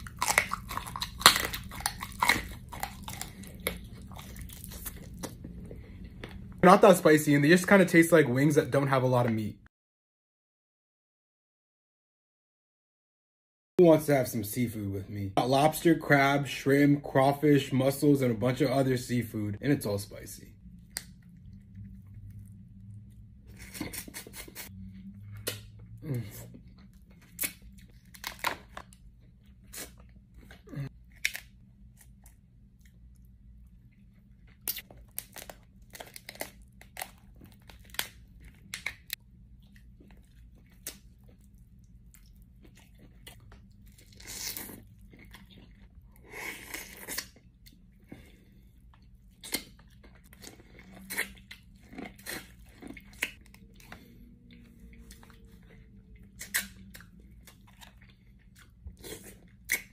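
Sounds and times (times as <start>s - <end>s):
shells cracking and crunching: 0.0s - 5.3s, 34.7s - 39.2s
chewing: 0.0s - 6.4s, 39.6s - 59.9s.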